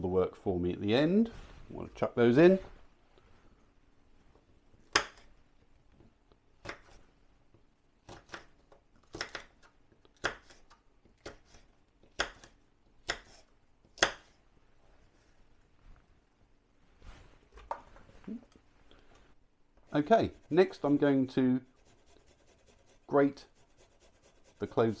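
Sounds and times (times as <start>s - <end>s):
knife chopping on wooden board: 14.0s - 14.3s.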